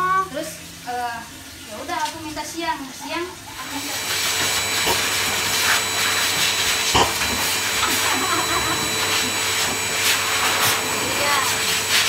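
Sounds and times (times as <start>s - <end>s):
dog dryer blowing air: 3.5s - 12.0s.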